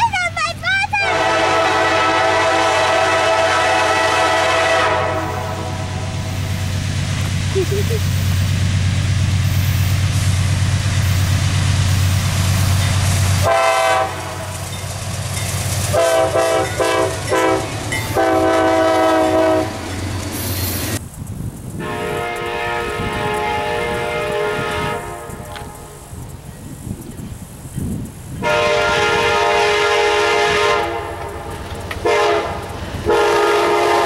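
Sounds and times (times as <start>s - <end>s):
locomotive air horn blasts: 1.0s - 6.3s, 13.4s - 14.6s, 15.9s - 19.8s, 21.8s - 26.1s, 28.4s - 34.0s
distant train horn: 1.0s - 6.4s, 13.4s - 14.7s, 15.9s - 20.0s, 21.8s - 26.1s, 28.4s - 34.0s.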